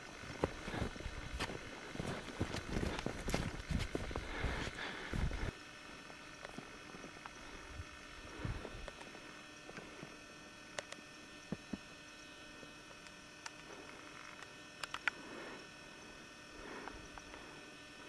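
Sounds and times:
faint electrical hum: 0.0 - 18.0
sharp clicks: 13.0 - 15.2.

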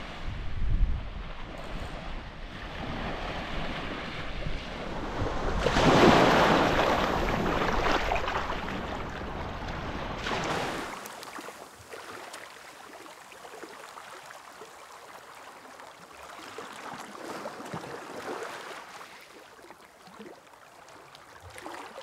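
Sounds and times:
wind buffeting microphone: 0.0 - 10.2
surf washing up a beach: 0.0 - 22.0.

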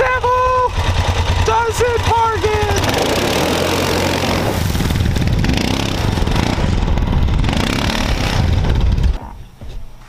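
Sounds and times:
atv engine revving: 0.0 - 9.2.

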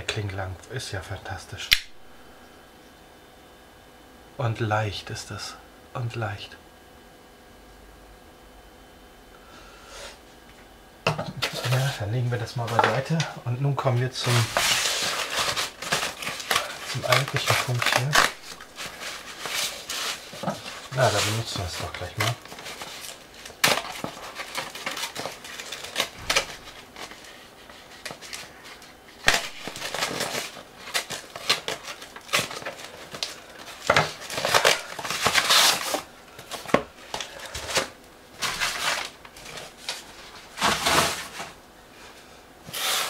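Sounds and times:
paper and cardboard tearing: 14.2 - 41.6, 42.7 - 43.0.

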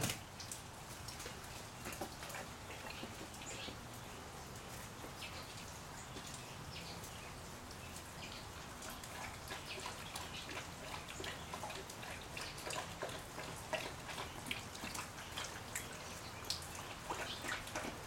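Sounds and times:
dog lapping water: 8.5 - 18.0.

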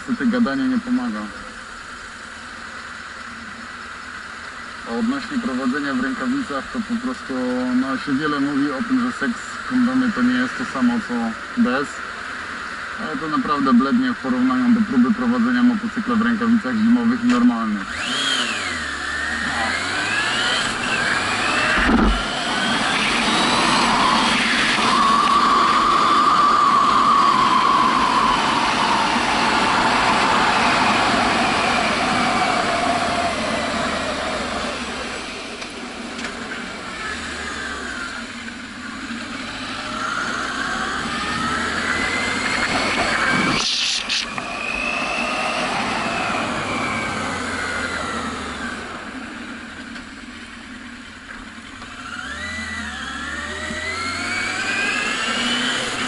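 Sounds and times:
motorcycle engine revving: 17.3 - 56.0
brief sharp sound: 43.3 - 44.4.

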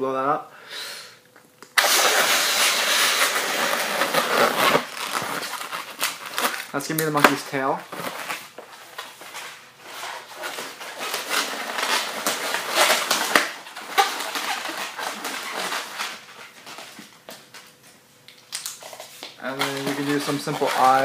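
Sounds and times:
balloons squeaking and rubbing: 1.8 - 16.9, 19.4 - 21.0.

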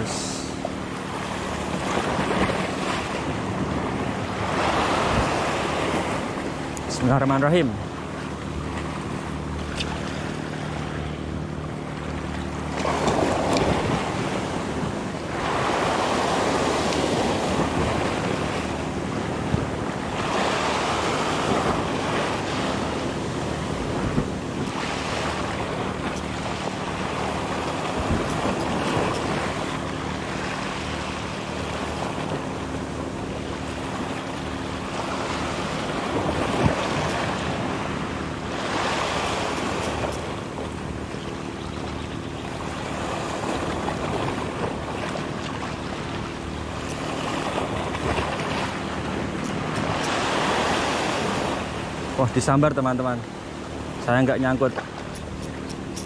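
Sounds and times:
waves breaking over rocks: 34.9 - 37.9, 42.6 - 53.2.

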